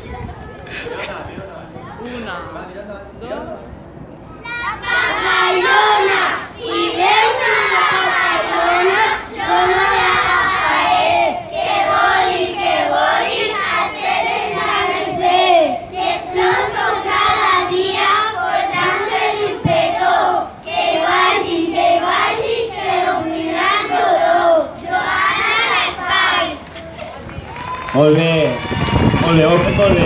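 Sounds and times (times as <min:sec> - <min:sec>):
children singing in unison: 0:04.7 - 0:26.6.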